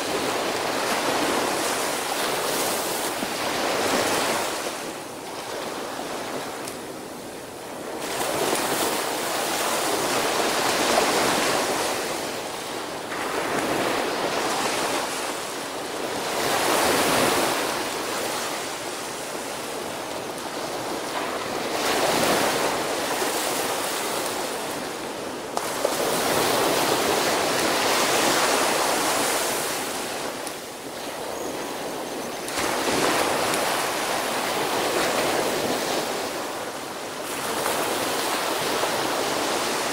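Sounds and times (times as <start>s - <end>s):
small waves breaking on sandy beach: 0.0s - 39.9s.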